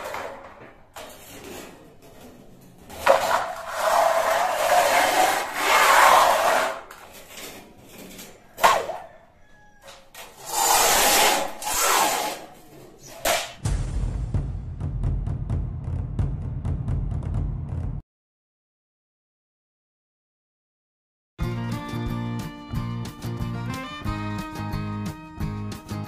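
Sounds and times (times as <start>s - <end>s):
steel sheet scraping on concrete: 0.0s - 8.4s, 10.2s - 13.4s.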